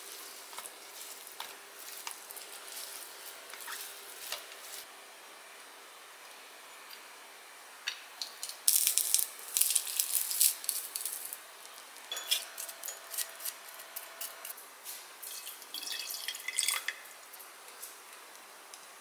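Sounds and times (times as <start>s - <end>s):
liquid pouring into glass jar: 15.2s - 17.0s.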